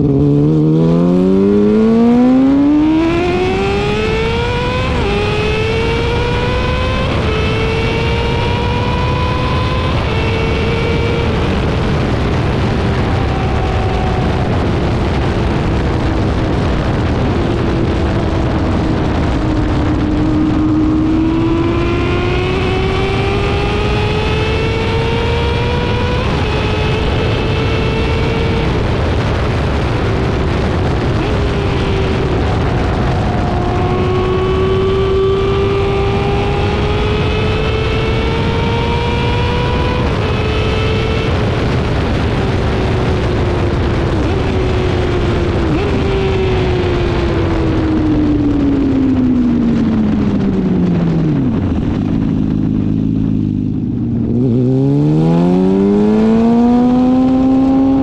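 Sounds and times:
motorcycle engine accelerating: 0.0 - 58.0
wind and road noise: 0.0 - 58.0.

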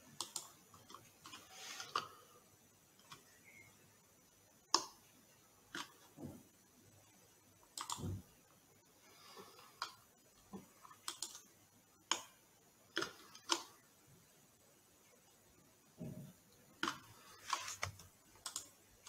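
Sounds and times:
mouse and keyboard clicks: 0.2 - 2.1, 5.7 - 6.0, 7.8 - 8.2, 10.8 - 12.4, 13.0 - 13.8, 16.8 - 18.8.

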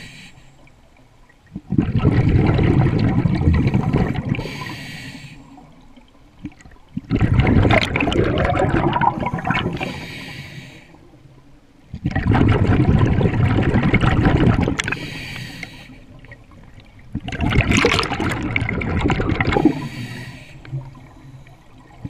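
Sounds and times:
scuba regulator bubbling exhalations: 1.5 - 5.7, 6.9 - 10.6, 11.9 - 16.3, 17.1 - 21.1.

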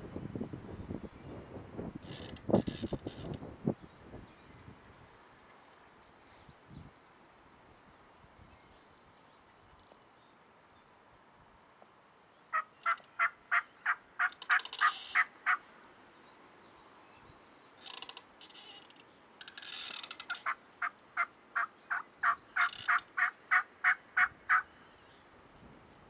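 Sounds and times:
wild turkey yelping: 12.5 - 15.6, 20.2 - 24.7.

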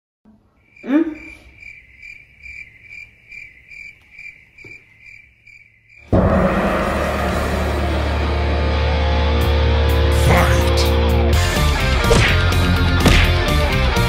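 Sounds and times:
loud music: 6.1 - 14.0.

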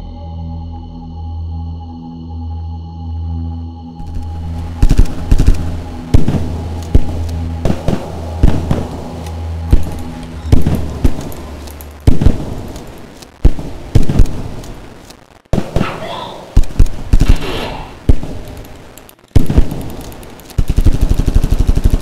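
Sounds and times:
low music drone: 0.0 - 15.2
sharp gunshots: 4.0 - 22.0.

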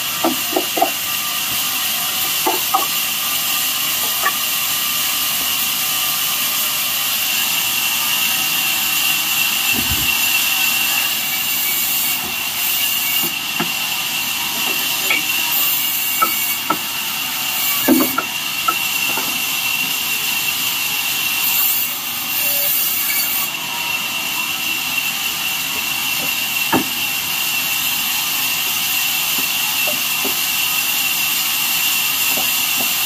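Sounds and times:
band saw whining: 0.0 - 33.0
wood pieces knocking: 2.3 - 3.0, 4.0 - 4.4.

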